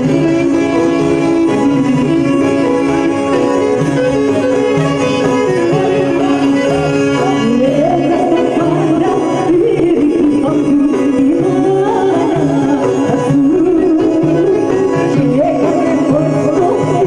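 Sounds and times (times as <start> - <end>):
clarinet: 0.0 - 8.5
harmonium: 0.0 - 17.0
woman singing into a microphone: 0.0 - 17.0.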